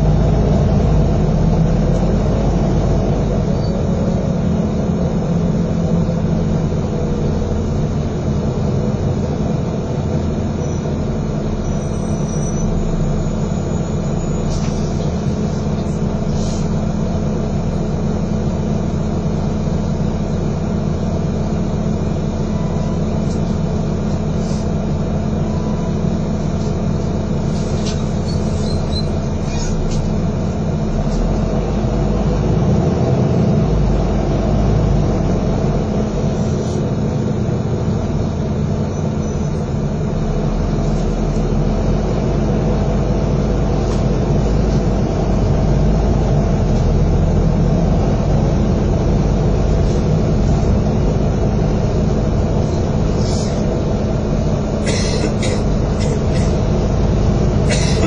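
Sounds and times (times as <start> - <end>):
bus diesel engine drone: 0.0 - 58.0
road noise: 0.0 - 58.0
light rattles and squeaks: 27.5 - 30.1, 38.8 - 39.7.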